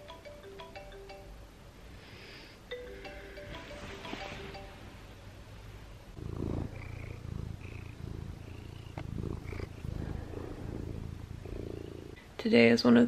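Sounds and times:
cat purring: 6.1s - 12.3s.

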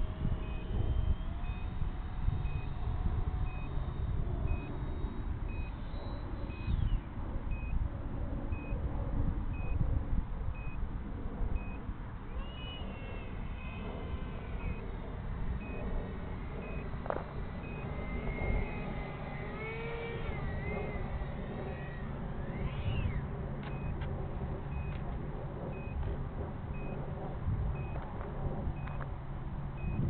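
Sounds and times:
distant model jet whine: 0.0s - 30.0s
wind buffeting microphone: 0.0s - 30.0s
faint short beep: 3.4s - 7.8s, 10.5s - 10.8s, 22.6s - 24.0s, 24.7s - 25.0s, 25.7s - 26.0s, 27.8s - 28.0s, 28.8s - 29.1s, 29.8s - 30.0s.

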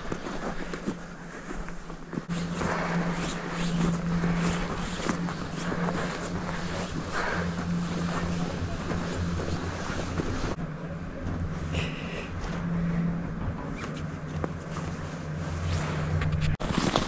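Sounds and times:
toboggan scraping over snow: 0.0s - 10.6s, 15.0s - 17.0s.

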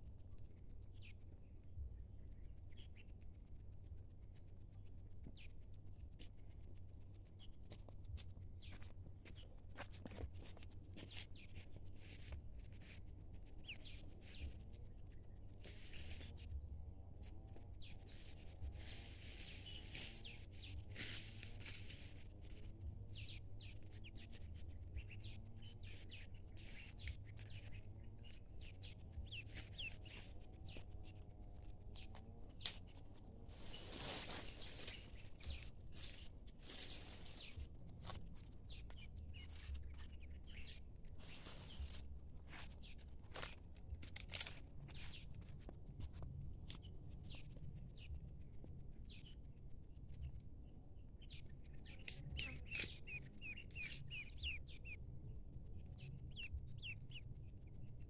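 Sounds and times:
ducklings peeping: 52.0s - 55.0s, 56.3s - 57.2s.

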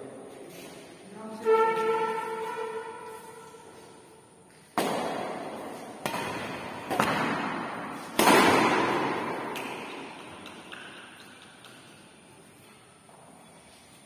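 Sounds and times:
rackets hitting shuttlecock: 4.6s - 12.2s.

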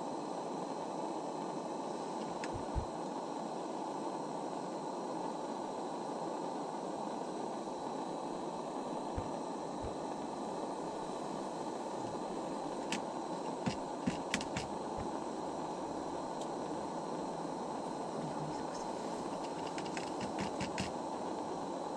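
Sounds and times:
sharp light clicks: 13.7s - 14.7s
steady hiss: 18.0s - 20.9s.

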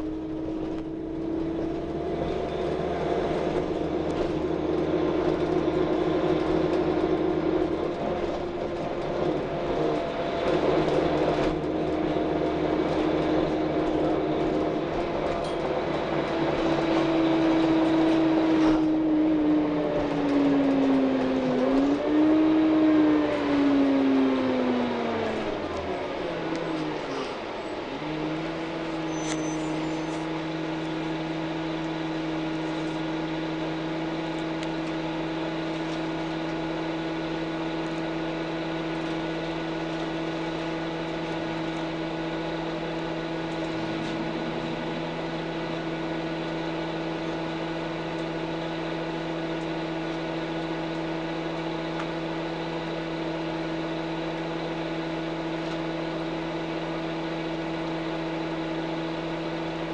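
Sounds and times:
bus engine humming: 0.0s - 59.9s.

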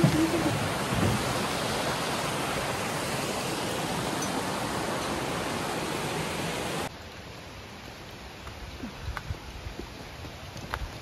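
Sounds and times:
waterfall rushing: 0.0s - 6.9s.

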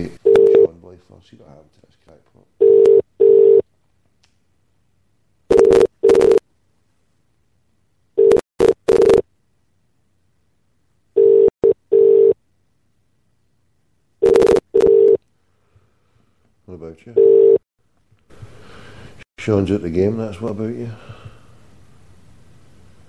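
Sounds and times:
telephone ringing tone: 0.2s - 0.7s, 2.6s - 3.6s, 5.5s - 6.4s, 8.2s - 9.2s, 11.2s - 12.4s, 14.2s - 15.2s, 17.2s - 17.6s.

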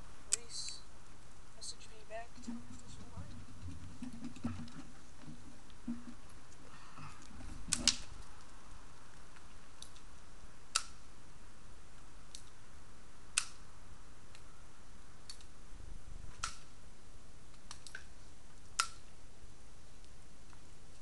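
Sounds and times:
pellet pistol clicks: 10.7s - 11.0s, 13.3s - 13.6s, 16.4s - 16.7s, 18.8s - 19.1s.

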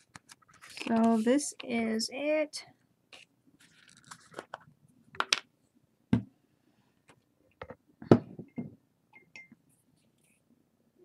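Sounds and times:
paper rustling: 0.0s - 1.4s, 3.1s - 4.6s.

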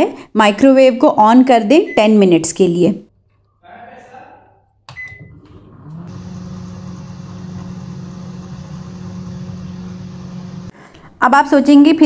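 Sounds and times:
microwave oven humming: 4.9s - 10.7s.

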